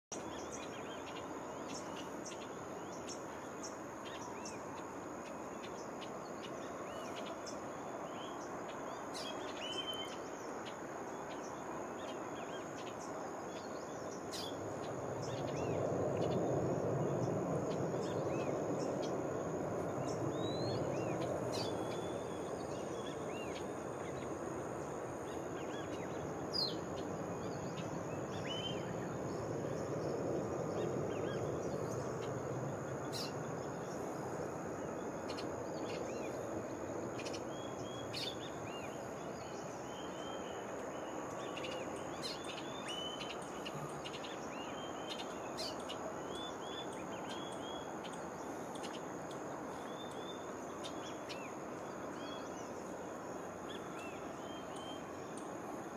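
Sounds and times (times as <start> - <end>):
forest birds chirping: 0.0 - 55.9
steady background hiss: 0.1 - 55.9.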